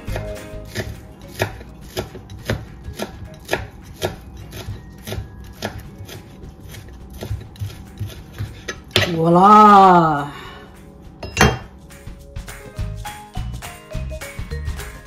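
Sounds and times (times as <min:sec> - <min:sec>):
knife chopping on plastic board: 0:00.0 - 0:09.2.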